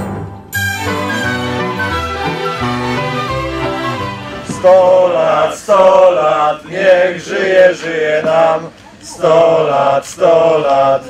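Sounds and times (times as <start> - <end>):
group of voices singing: 3.1 - 11.0.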